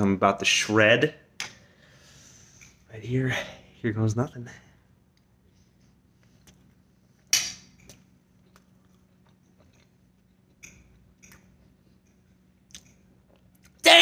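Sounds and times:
person chewing: 6.1 - 13.8.

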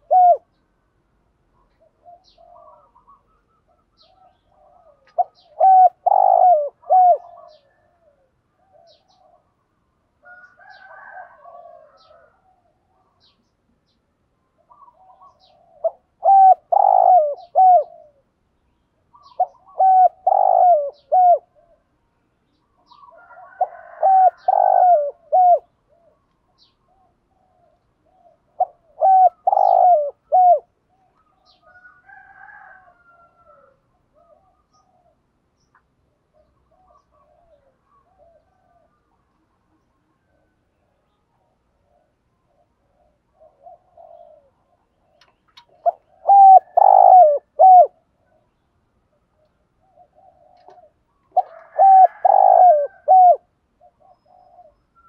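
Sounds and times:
dove cooing: 0.0 - 0.6, 1.5 - 9.6, 10.2 - 13.4, 14.6 - 18.4, 19.0 - 22.0, 22.7 - 35.3, 36.2 - 55.0
faint bird calls: 1.4 - 55.0.

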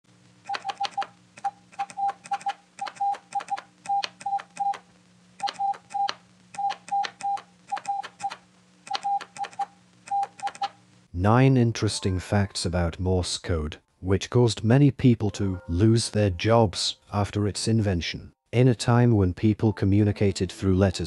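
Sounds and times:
faint steady hum: 0.1 - 21.0
morse code beeps: 0.5 - 4.8, 5.4 - 10.7
telegraph key clicks: 0.5 - 4.8.

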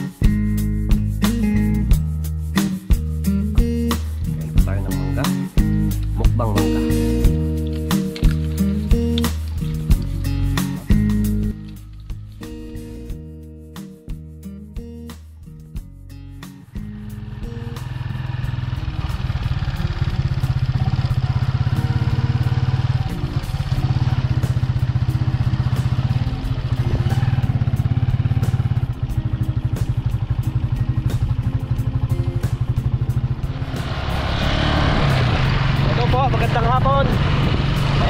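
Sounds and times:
engine running steadily: 16.6 - 38.0.

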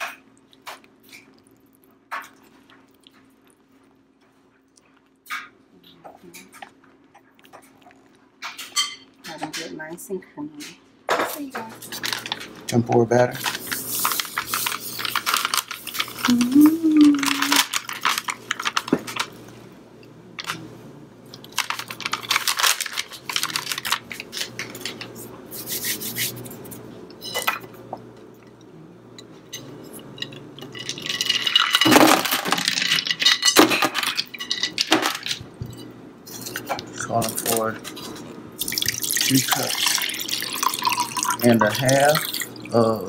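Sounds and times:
dishes clinking: 8.4 - 9.7, 27.2 - 28.0, 29.2 - 38.2
plastic bag rustling: 11.7 - 12.6, 13.3 - 19.5, 21.4 - 26.4.

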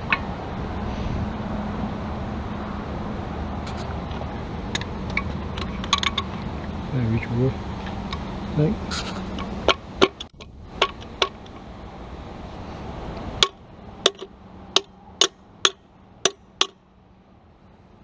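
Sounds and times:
metal-on-metal engine parts tapping: 0.0 - 0.3, 3.7 - 6.8, 7.8 - 11.7, 13.3 - 16.9.

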